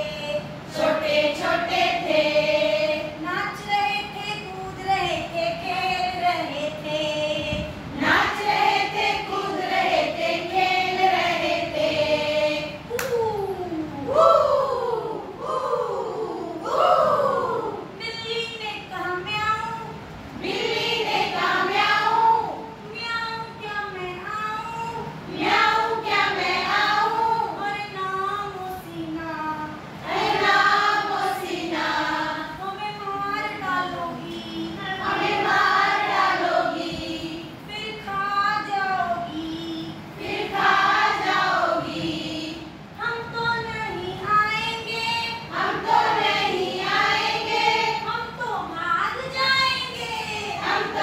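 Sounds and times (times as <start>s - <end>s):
women singing a chant: 0.0s - 13.0s, 20.4s - 51.0s.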